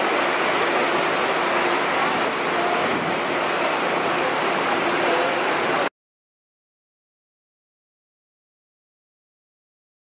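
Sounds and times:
crowded restaurant din: 0.6s - 5.9s.

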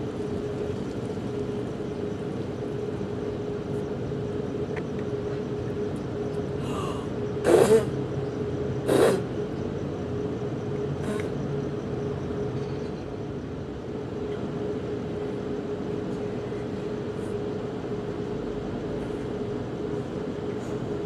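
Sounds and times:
low mechanical rumble with hum: 0.0s - 21.0s.

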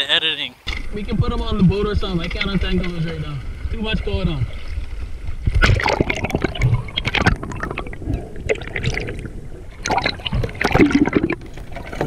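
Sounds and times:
water sloshing underwater: 0.7s - 12.0s
bubbles rushing: 3.7s - 12.0s.

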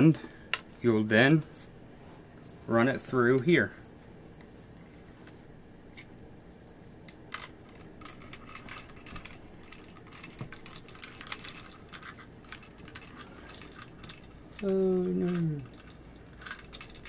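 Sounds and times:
metal chain clinking in rifle barrel: 6.0s - 17.0s.

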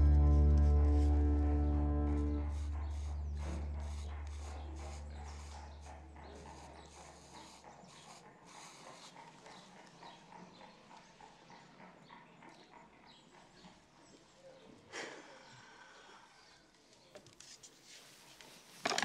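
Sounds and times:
deep sustained music chord: 0.0s - 3.8s.

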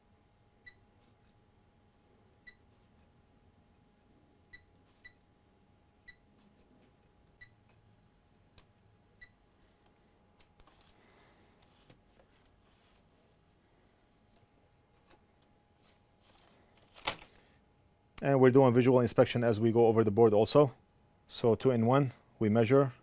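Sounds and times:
multimeter beeps: 0.6s - 0.9s, 2.4s - 2.8s, 4.5s - 5.3s, 6.0s - 6.3s, 7.4s - 7.6s, 9.2s - 9.4s.

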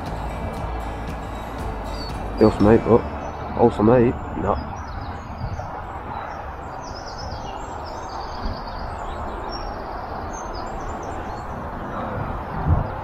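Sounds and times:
low outdoor rumble: 0.0s - 6.8s
songbirds chirping and trilling: 0.0s - 13.0s.

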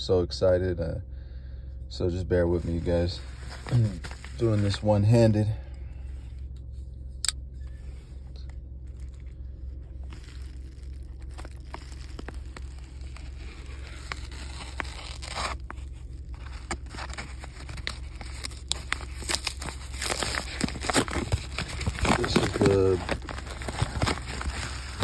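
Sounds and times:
steady low hum: 0.0s - 25.0s
envelope crinkling: 2.6s - 5.0s, 8.8s - 25.0s
blade tearing paper mailer: 10.0s - 25.0s.

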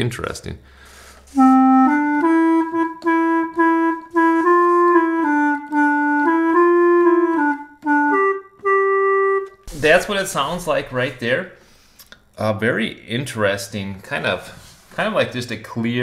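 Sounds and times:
reed keyboard melody: 1.3s - 9.6s.

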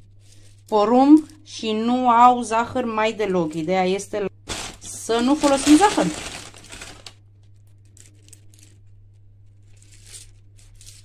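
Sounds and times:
low steady hum: 0.0s - 11.0s
cornflakes crinkling: 4.5s - 8.9s, 9.6s - 11.0s.

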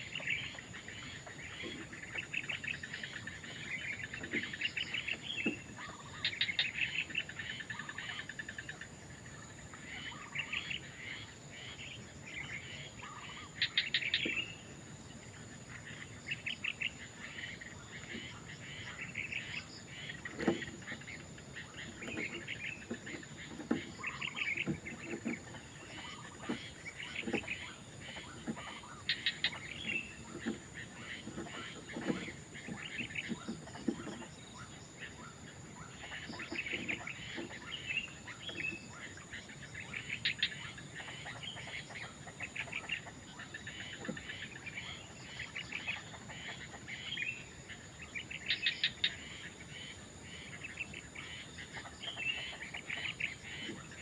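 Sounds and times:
nestlings chattering calls: 18.0s - 34.2s.

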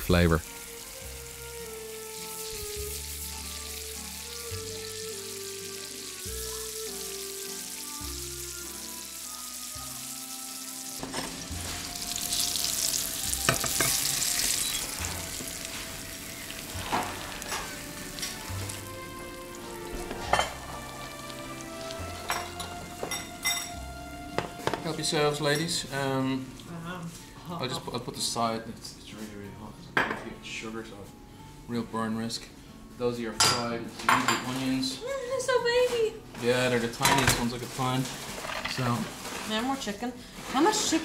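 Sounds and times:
apples sizzling in a pan: 0.0s - 29.4s, 33.1s - 41.0s
soft background music: 0.0s - 41.0s
pan knocking: 13.4s - 14.1s, 22.2s - 25.1s.

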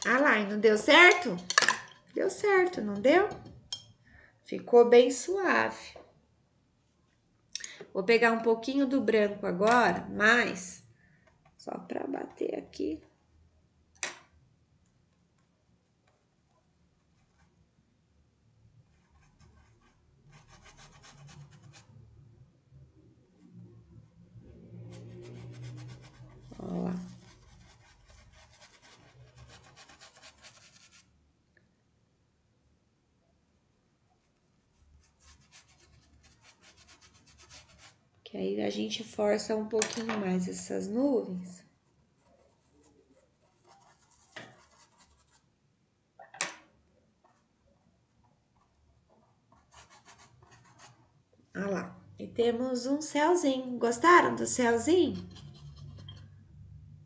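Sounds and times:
paintbrush scratching on cloth: 18.9s - 22.0s, 24.8s - 31.1s, 34.3s - 38.0s, 41.9s - 45.5s, 49.6s - 51.0s
brush scraping: 24.8s - 31.1s, 34.7s - 38.0s, 55.1s - 56.3s.

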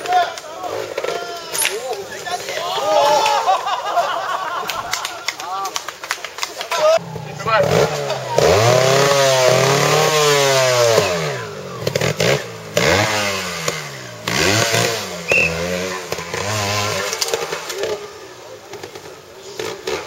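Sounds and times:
motorcycle engine revving: 7.0s - 20.0s.

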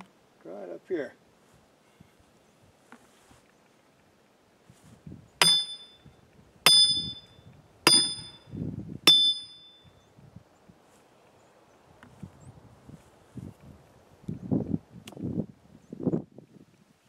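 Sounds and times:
hammer clanging on steel wedge: 5.4s - 6.0s, 6.7s - 7.3s, 7.9s - 8.4s, 9.1s - 9.8s.

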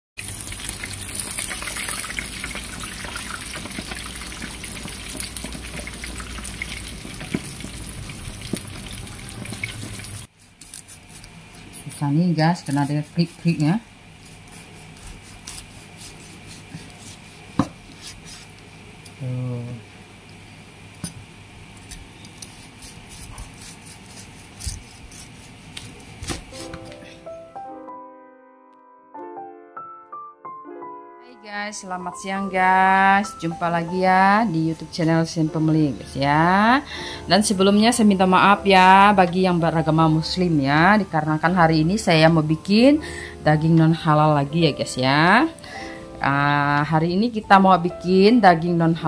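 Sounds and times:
pork sizzling in hot oil: 0.2s - 11.0s.

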